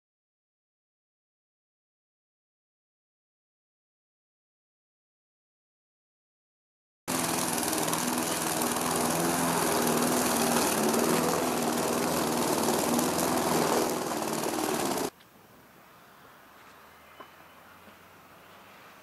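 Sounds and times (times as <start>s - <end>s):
lawnmower engine cutting grass: 7.1s - 15.1s
faint outdoor background: 7.1s - 19.0s.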